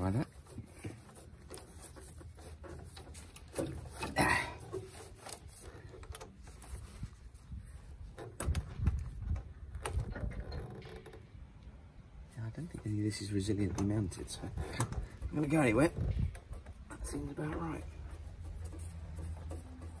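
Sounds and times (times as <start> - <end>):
metal scrape or rattle: 0.0 - 9.0.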